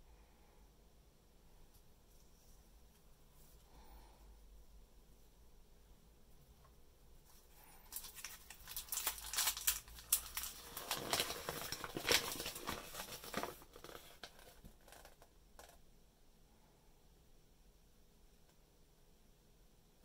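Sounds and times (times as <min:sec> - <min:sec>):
paper being unfolded: 0:07.3 - 0:15.0
plastic packets crinkling: 0:07.6 - 0:15.0.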